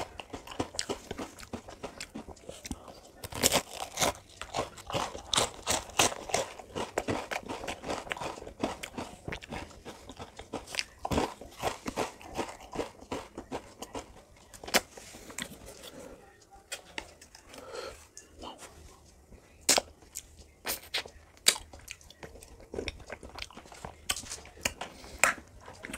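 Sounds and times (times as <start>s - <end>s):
crunchy ice cream bites: 0.0s - 14.9s, 19.6s - 25.9s.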